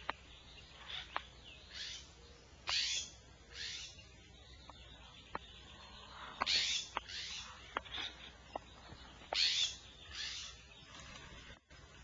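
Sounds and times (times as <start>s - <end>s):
owl harsh hissing calls: 1.7s - 2.1s, 2.7s - 4.0s, 6.0s - 7.6s.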